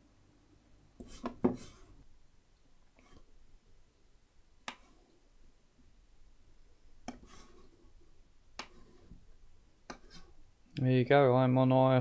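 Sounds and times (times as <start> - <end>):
computer mouse clicks: 4.6 - 4.9, 8.6 - 8.9.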